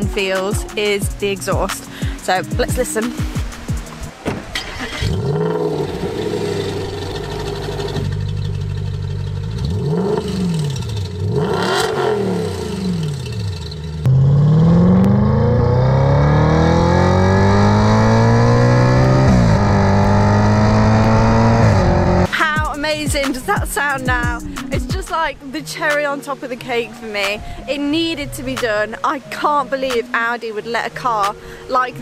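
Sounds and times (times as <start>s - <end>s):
car engine revving and accelerating: 4.1s - 22.3s.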